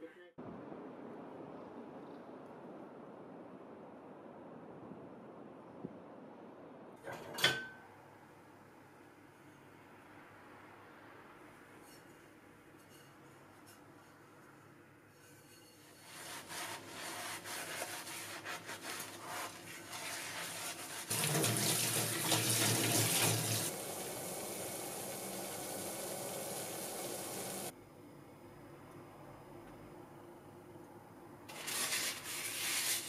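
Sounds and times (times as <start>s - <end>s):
sponge scrubbing skillet: 15.2s - 23.7s, 31.5s - 33.0s
tap water running: 20.0s - 27.7s.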